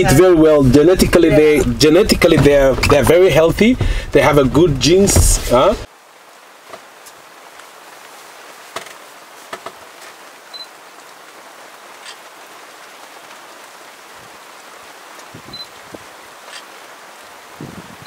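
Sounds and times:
steady hiss: 0.4 - 10.7.

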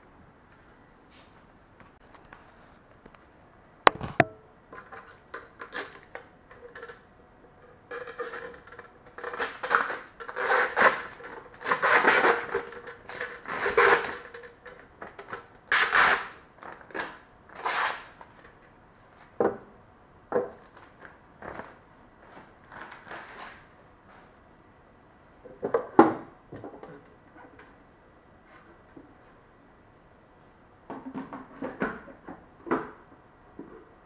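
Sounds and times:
plastic scraping and rubbing: 7.9 - 18.2.

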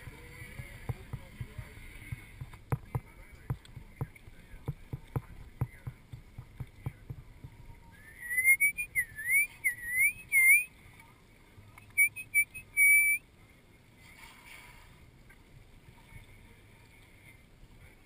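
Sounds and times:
quick whistled chirps: 8.0 - 10.7, 11.9 - 13.2
whistles sliding up and down: 8.0 - 10.7, 11.8 - 13.2.

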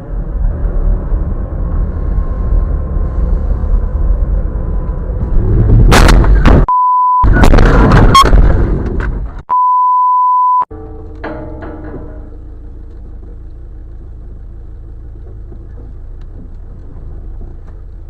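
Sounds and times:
car road and engine rumble: 0.0 - 6.7, 10.7 - 18.0
high censor bleep: 6.7 - 7.4, 9.5 - 10.7.

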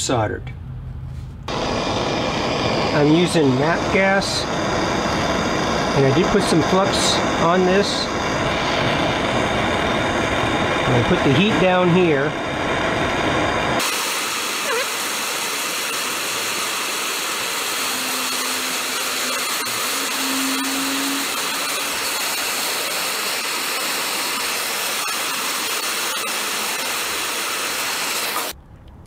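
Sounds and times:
gas torch hissing: 1.5 - 28.6.

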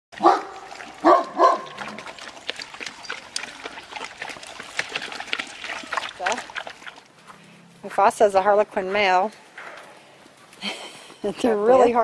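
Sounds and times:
dog barking: 0.2 - 1.8
puppies eating kibble from pans: 0.2 - 10.6.

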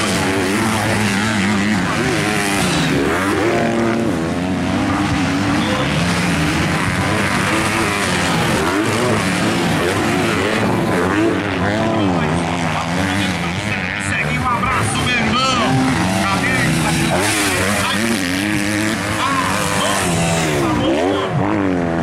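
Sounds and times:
motocross engines revving: 0.0 - 22.0.

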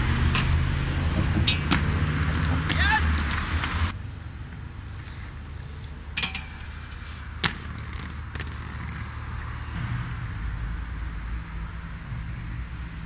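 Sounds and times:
skates rolling rumble: 0.0 - 10.0.

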